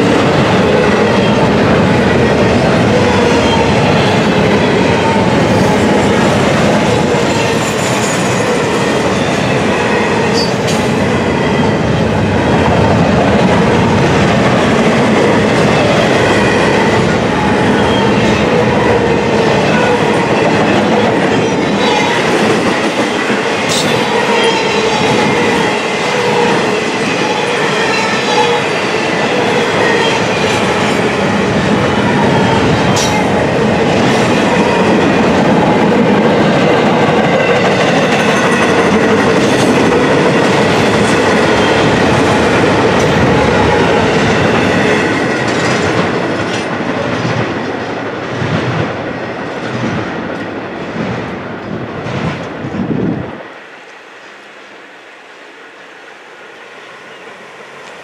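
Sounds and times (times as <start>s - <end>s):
train wheels rumbling on rails: 0.0s - 54.6s.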